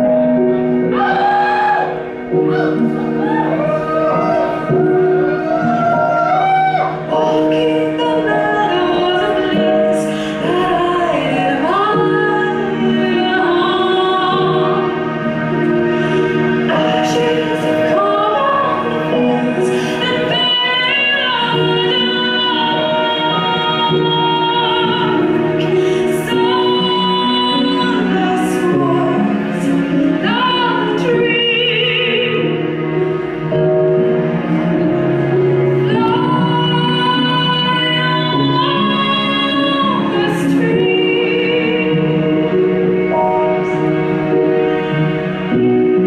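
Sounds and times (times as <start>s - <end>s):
sustained backing chords: 0.0s - 46.0s
woman singing with vibrato: 5.9s - 15.2s, 16.6s - 32.8s, 35.8s - 43.6s.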